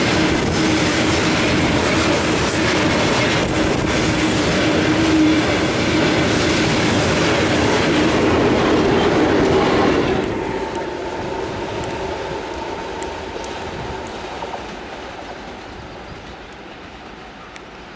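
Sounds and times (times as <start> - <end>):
train wheels clattering over rail joints: 0.0 - 10.8
diesel locomotive passing: 0.0 - 17.9
distant train rumble: 0.0 - 17.9.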